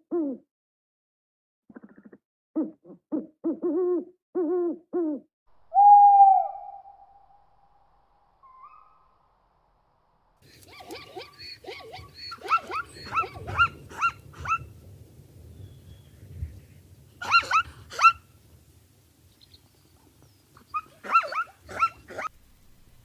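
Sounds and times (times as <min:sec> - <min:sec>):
zebra yelping barks: 0:10.7 - 0:14.7, 0:17.2 - 0:18.2, 0:20.7 - 0:22.3.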